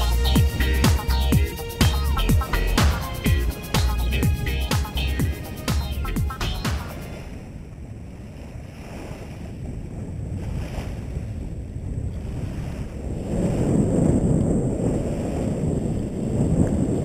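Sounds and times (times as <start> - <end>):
small waves lapping at shore: 6.8 - 11.5, 12.2 - 13.7
wind rumbling on microphone: 7.0 - 17.0.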